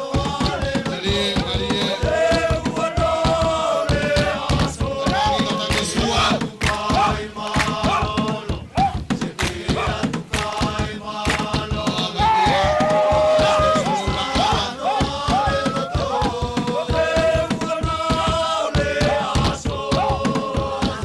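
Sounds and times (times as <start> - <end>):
fast percussion beat: 0.0 - 21.0
group singing and chanting: 0.0 - 21.0
rising and falling cries: 12.0 - 16.9.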